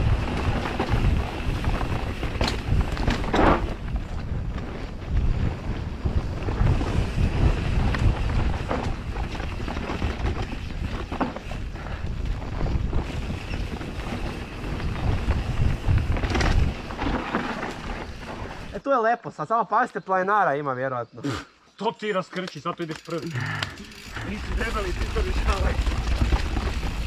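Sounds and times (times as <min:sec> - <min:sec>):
bike knocks and rattles: 0:00.0 - 0:18.7, 0:23.9 - 0:27.0
wind buffeting microphone: 0:00.0 - 0:18.7.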